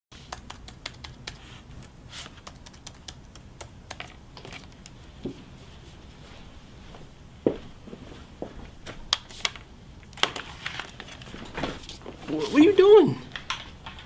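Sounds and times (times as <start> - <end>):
laptop keyboard typing: 0.2 - 5.0.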